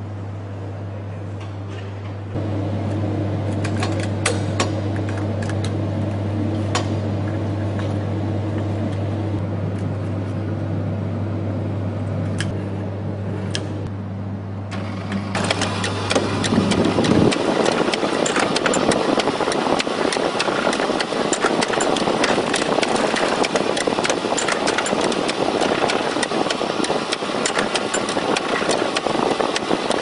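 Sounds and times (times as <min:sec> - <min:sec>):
low steady hum: 0:00.0 - 0:30.0
machine clattering with rapid clicks: 0:14.8 - 0:30.0.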